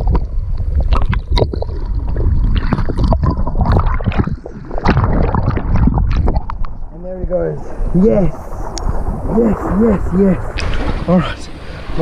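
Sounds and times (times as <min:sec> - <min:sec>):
bubbles gurgling: 0:00.0 - 0:06.9
sea waves sloshing: 0:00.0 - 0:12.0.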